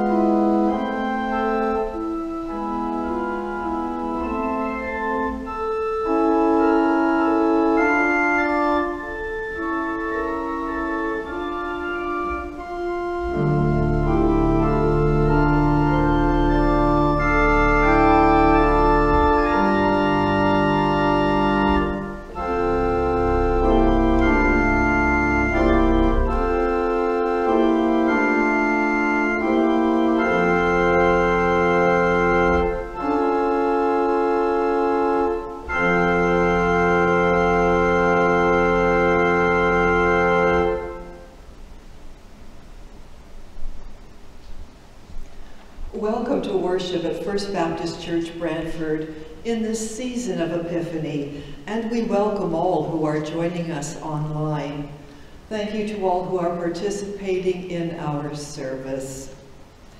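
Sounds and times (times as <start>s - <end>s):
deep organ pedal bass notes: 0.0s - 41.3s
church organ chords: 0.0s - 42.2s.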